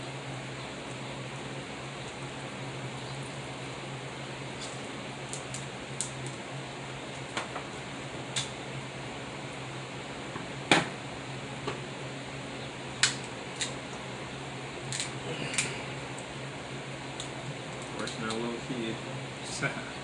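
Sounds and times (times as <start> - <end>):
steady background hum: 0.0 - 20.0
crab shell cracking: 4.6 - 6.4, 13.0 - 13.8, 14.8 - 15.8.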